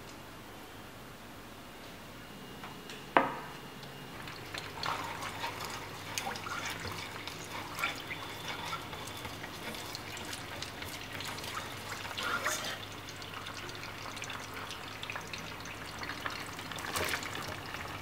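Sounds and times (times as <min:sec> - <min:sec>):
water bubbling in a metal pan: 0:04.1 - 0:18.0
chopsticks stirring with splashes: 0:04.2 - 0:14.8.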